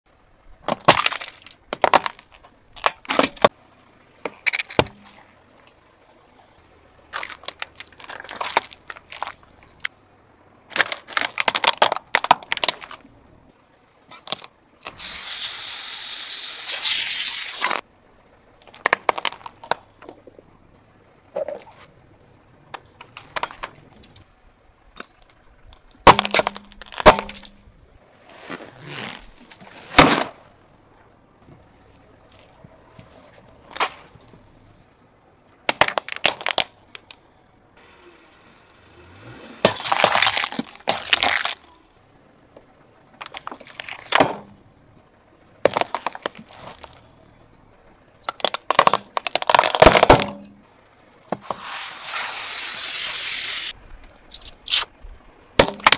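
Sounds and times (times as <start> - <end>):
tyre crushing plastic toys: 0.6 - 3.5, 7.1 - 9.9, 10.7 - 13.0, 18.6 - 20.3, 25.8 - 27.6, 28.5 - 30.4, 35.7 - 37.2, 39.6 - 41.7, 43.2 - 44.6, 45.6 - 47.1, 48.3 - 50.6, 55.6 - 55.9
plastic shattering: 10.7 - 13.0, 26.0 - 27.6, 35.7 - 36.8, 39.6 - 41.6, 48.3 - 50.6, 55.6 - 55.9.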